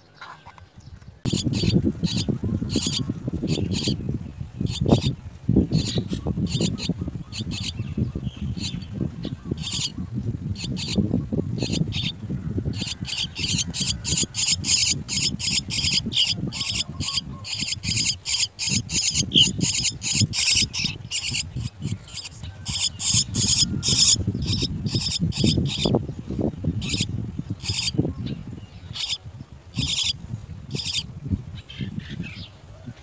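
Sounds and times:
starlings giving raspy calls: 0:01.3 - 0:26.0, 0:26.7 - 0:32.5.

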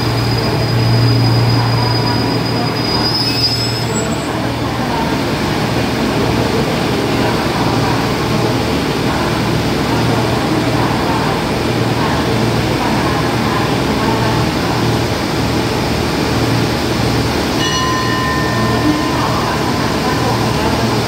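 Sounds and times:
train brake squeal: 0:00.0 - 0:04.4.

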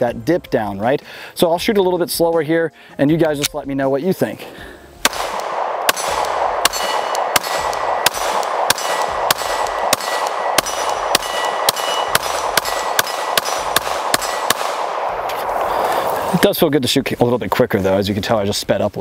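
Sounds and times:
pistol shots: 0:05.0 - 0:15.9
short metallic ring: 0:06.7 - 0:07.6, 0:08.7 - 0:13.4.

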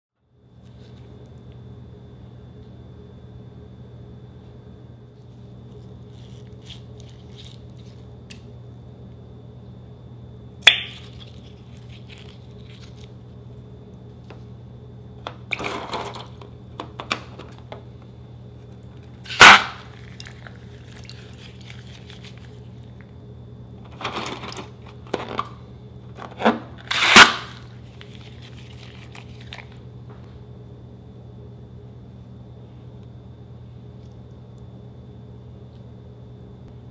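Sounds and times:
scissors snipping balloons: 0:19.3 - 0:19.9, 0:26.8 - 0:27.6.

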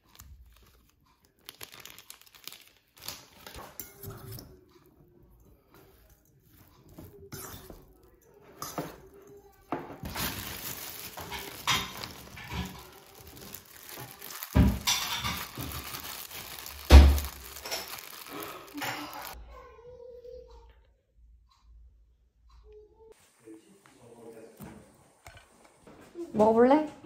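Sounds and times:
dishes and cutlery clinking: 0:03.3 - 0:19.4.

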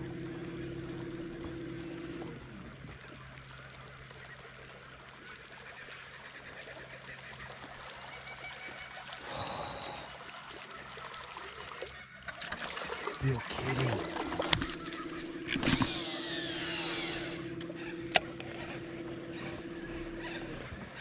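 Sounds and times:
steady low hum: 0:00.0 - 0:03.9, 0:13.2 - 0:21.0
lure gurgling on water: 0:09.2 - 0:10.4, 0:12.2 - 0:21.0.

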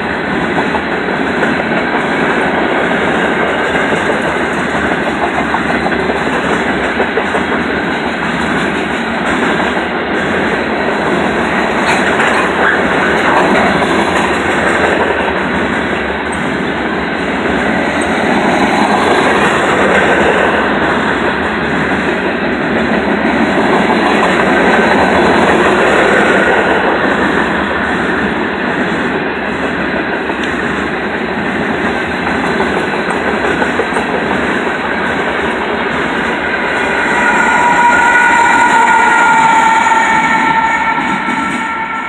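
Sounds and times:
train wheels rumbling on rails: 0:00.0 - 0:42.0.

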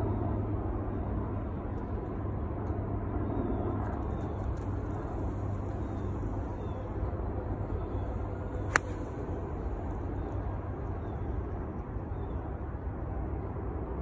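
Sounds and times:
golf club striking ball: 0:08.7 - 0:09.2.

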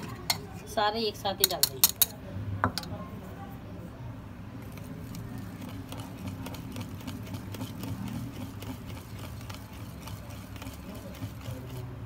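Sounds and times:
whisk clicking against dish: 0:05.6 - 0:12.0.

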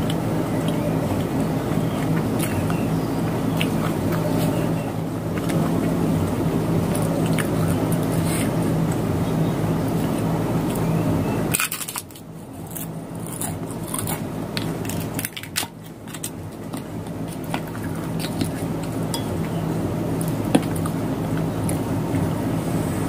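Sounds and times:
chewing: 0:00.0 - 0:09.1, 0:11.5 - 0:22.3
low electrical hum: 0:00.0 - 0:23.0.

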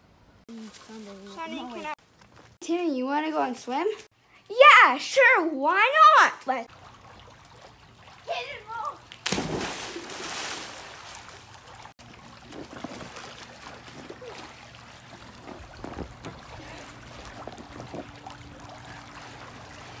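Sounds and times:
pool water lapping and splashing: 0:00.5 - 0:02.6, 0:05.8 - 0:20.0.

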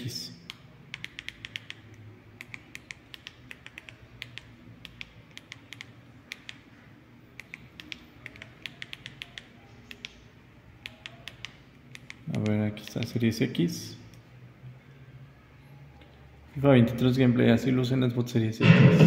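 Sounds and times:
remote control buttons clicking: 0:00.4 - 0:06.6, 0:07.4 - 0:10.2, 0:10.8 - 0:13.2.

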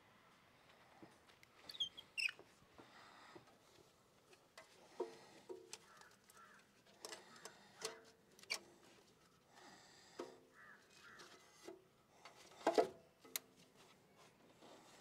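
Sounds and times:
oil filter squeaks: 0:01.7 - 0:02.4.

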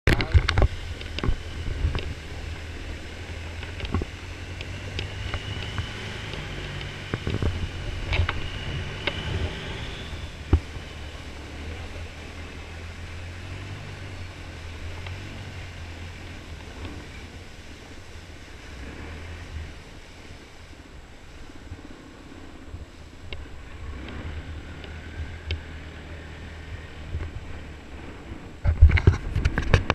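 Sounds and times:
boat engine drone: 0:00.0 - 0:29.9
water rushing along hull: 0:00.1 - 0:29.9.

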